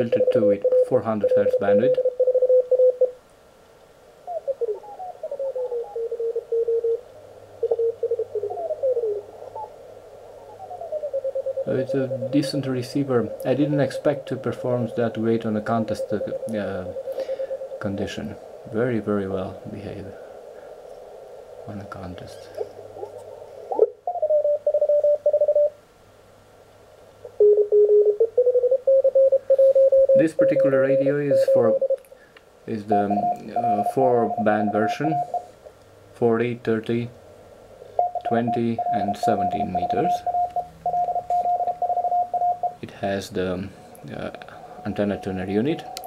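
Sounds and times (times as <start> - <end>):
morse code tones: 0.0 - 3.2, 10.6 - 18.4, 24.1 - 25.8, 27.3 - 32.0, 32.7 - 35.5, 38.0 - 42.9, 44.2 - 46.0
faint receiver hiss: 0.0 - 6.0, 6.9 - 46.0.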